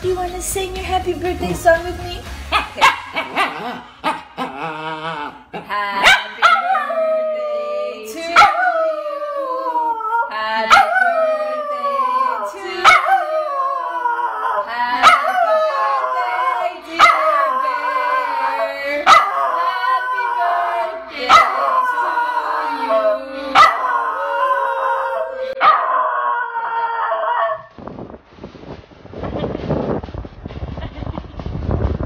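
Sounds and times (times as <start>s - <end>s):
woman howling: 4.5s - 27.4s
dog howling: 6.4s - 27.7s
wind-like rush: 27.7s - 32.0s.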